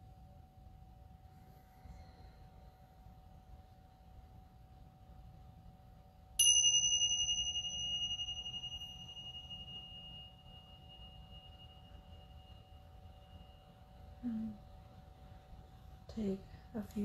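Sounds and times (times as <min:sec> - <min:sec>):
small cymbals ringing: 0:06.4 - 0:15.3.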